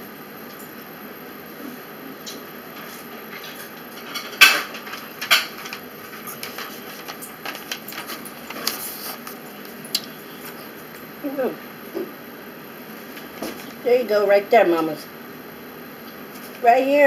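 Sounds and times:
small clicks and clatters: 0:02.3 - 0:10.1.

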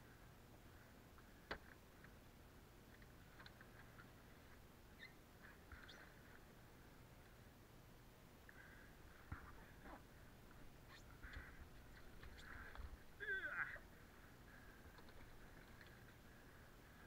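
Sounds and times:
faint ticks: 0:02.9 - 0:04.6, 0:10.4 - 0:12.9, 0:14.6 - 0:16.3.

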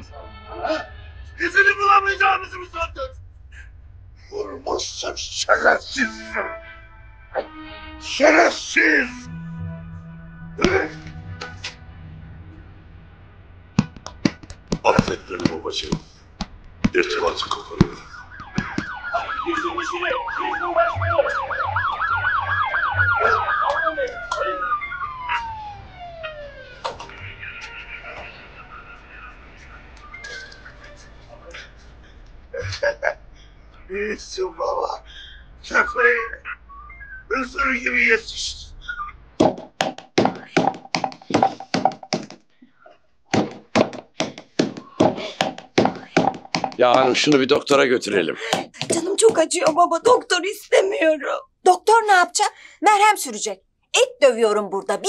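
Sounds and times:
siren wailing: 0:05.5 - 0:15.4, 0:17.0 - 0:31.8
siren yelping: 0:17.1 - 0:31.6
meat pounded on wooden board: 0:39.4 - 0:42.4, 0:43.3 - 0:47.0.

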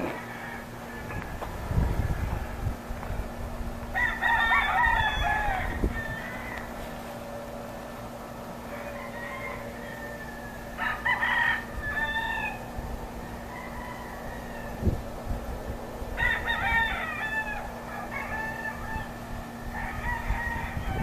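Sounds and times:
rooster crowing: 0:00.0 - 0:01.4, 0:03.9 - 0:07.4, 0:08.5 - 0:15.2, 0:16.1 - 0:21.0
steady low hum: 0:00.0 - 0:21.0.

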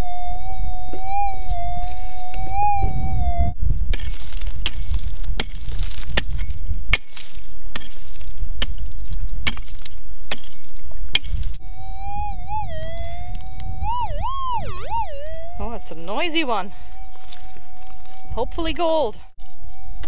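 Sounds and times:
metal detector tone: 0:00.0 - 0:03.5, 0:11.6 - 0:20.0
digging tool striking stony ground: 0:03.9 - 0:11.6.

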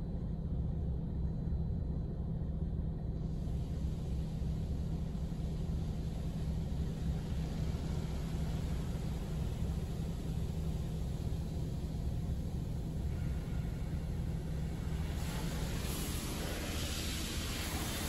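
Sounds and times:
steady low rumble: 0:00.0 - 0:18.0
car wash water spray hiss: 0:05.3 - 0:18.0.

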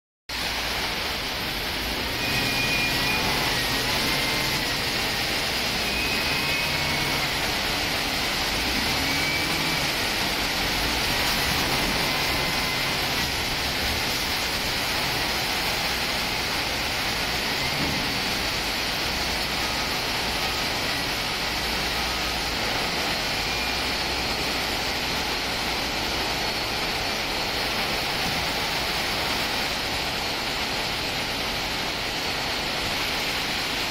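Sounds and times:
diesel engine running: 0:00.3 - 0:33.9
rushing machinery noise: 0:00.3 - 0:33.9
faint whistle-like tones: 0:02.0 - 0:13.4.

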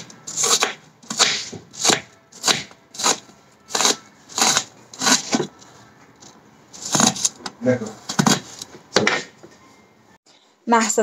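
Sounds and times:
knife slicing onion on cutting board: 0:00.0 - 0:05.5.

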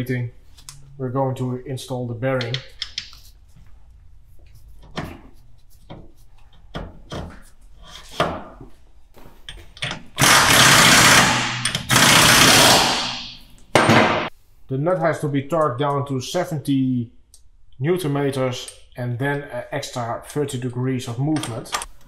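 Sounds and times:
power tool bursts: 0:10.2 - 0:13.4.

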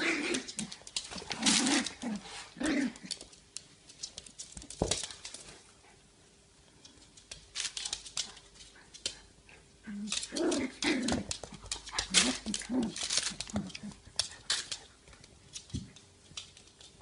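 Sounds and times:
puppies scuffling: 0:00.0 - 0:05.9, 0:10.1 - 0:17.0.

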